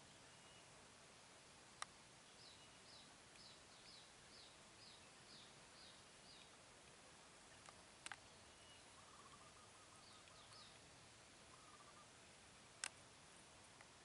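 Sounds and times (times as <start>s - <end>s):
faint high bird chirps: 0.0s - 0.8s, 2.2s - 6.6s, 8.1s - 12.2s
soft background hiss: 0.0s - 14.0s
sharp clicks: 7.6s - 8.2s, 12.8s - 13.0s.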